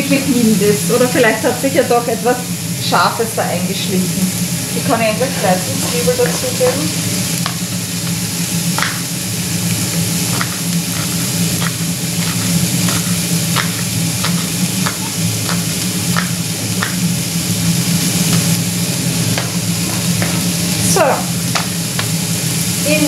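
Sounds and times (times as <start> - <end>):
low hum: 0.0 - 23.0
vegetables sizzling in a frying pan: 0.0 - 23.0
knife tapping on cutting board: 8.8 - 9.0, 10.4 - 17.0, 21.5 - 22.1.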